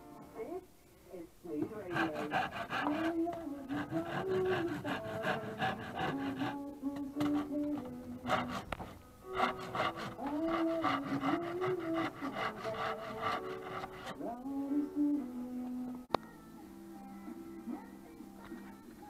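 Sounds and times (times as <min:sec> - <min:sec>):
background music: 0:00.0 - 0:19.0
rasp scraping wood: 0:01.6 - 0:14.2.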